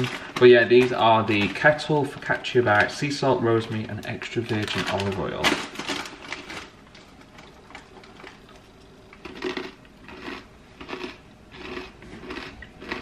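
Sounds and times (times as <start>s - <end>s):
person chewing crunchy bread: 7.4s - 13.0s.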